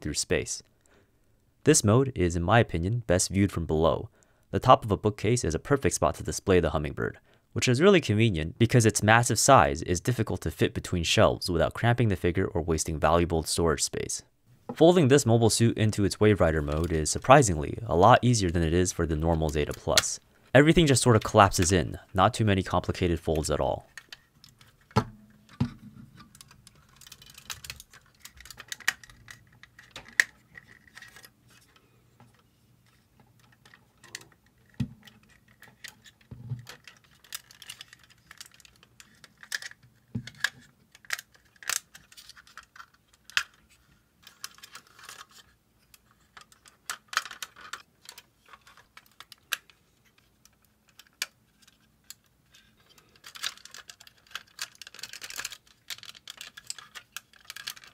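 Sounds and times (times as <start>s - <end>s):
plastic figure joints clicking: 26.2s - 57.9s.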